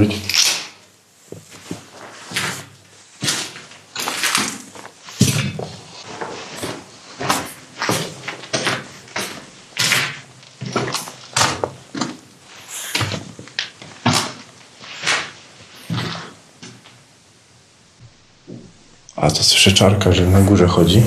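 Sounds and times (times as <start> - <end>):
footsteps crunching over debris: 1.2 - 16.4.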